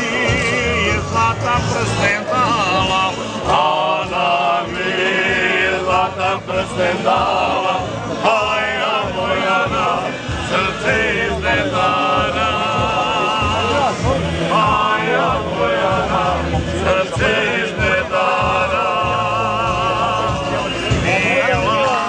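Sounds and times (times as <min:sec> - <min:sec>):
men singing together: 0:00.0 - 0:22.0.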